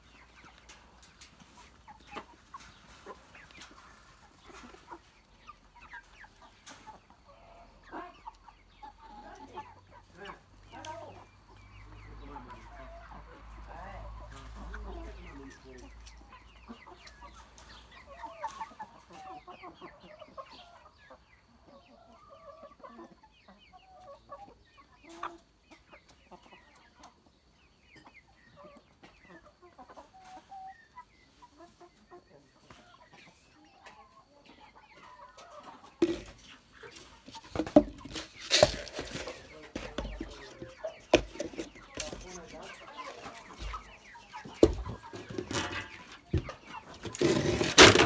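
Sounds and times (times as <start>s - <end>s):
hens clucking: 0.0s - 48.0s
plastic buckets knocking: 36.0s - 36.4s, 37.5s - 42.3s, 44.6s - 48.0s.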